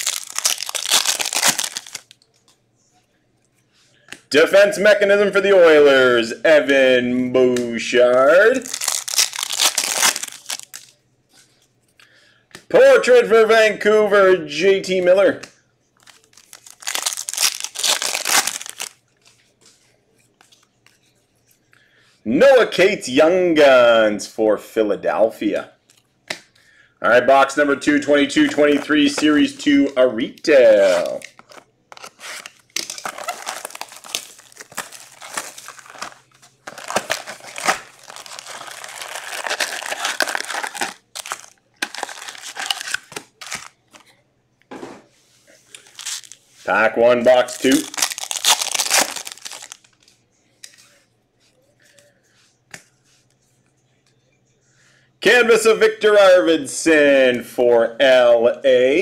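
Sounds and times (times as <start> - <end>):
cards rustling and scraping: 16.0 - 21.7, 30.6 - 44.1.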